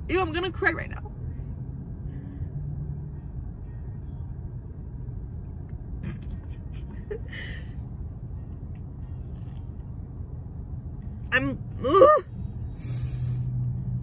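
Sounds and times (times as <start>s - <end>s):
car idling rumble: 0.0s - 14.0s.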